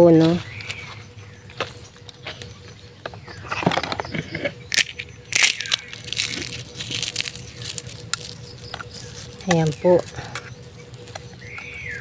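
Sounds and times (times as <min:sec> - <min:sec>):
eggshells crackling and crunching: 0:03.5 - 0:12.0.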